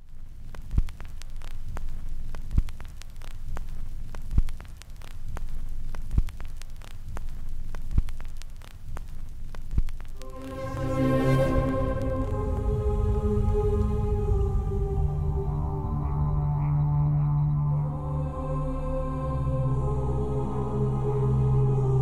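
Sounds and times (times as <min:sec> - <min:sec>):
crackle of clicks: 0:00.0 - 0:10.9
low rumbling drone: 0:10.2 - 0:22.0.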